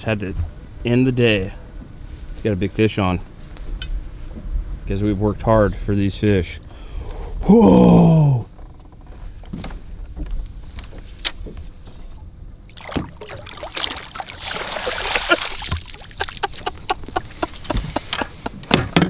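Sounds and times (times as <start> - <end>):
fish splashing in water: 12.7 - 17.6.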